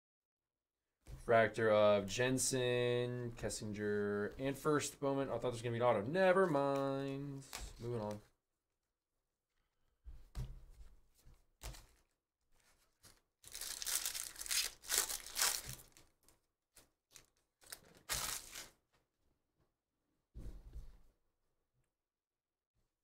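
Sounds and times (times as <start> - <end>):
cards rustling and clicking: 6.4 - 8.2, 11.6 - 16.1, 16.8 - 18.7
foil wrapper tearing and crinkling: 13.0 - 18.8.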